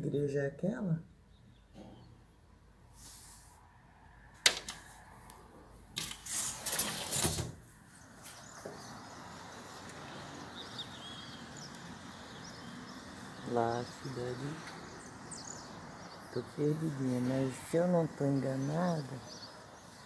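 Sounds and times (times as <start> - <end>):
outdoor city ambience: 0.0 - 20.0
window scraping open: 6.0 - 7.6.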